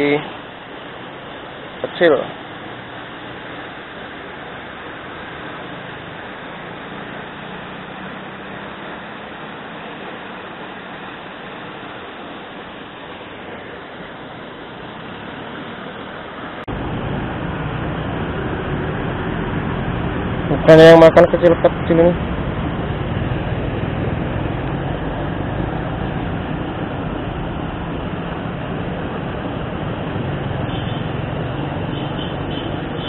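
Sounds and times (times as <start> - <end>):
steady rushing noise: 0.0 - 33.0.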